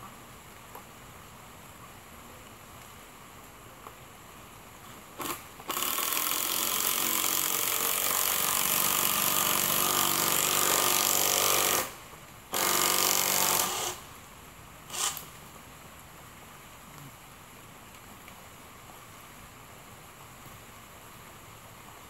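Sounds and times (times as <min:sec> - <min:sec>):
power drill driving screws: 0:05.2 - 0:14.0, 0:14.9 - 0:15.3.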